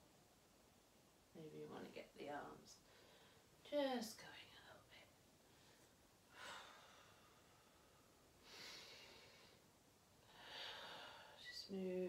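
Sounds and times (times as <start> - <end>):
woman breathing deeply: 2.8 - 3.6, 5.4 - 11.5.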